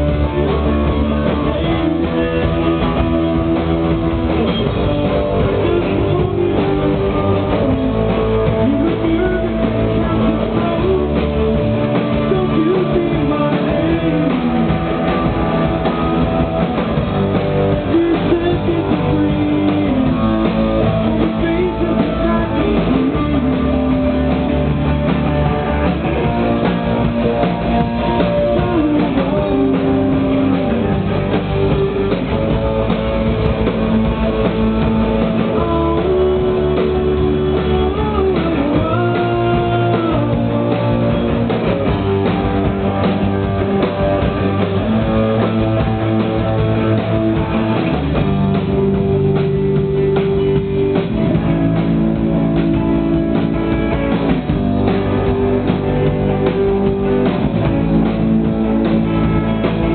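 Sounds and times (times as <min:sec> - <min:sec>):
rock band playing live: 0:00.0 - 0:59.9.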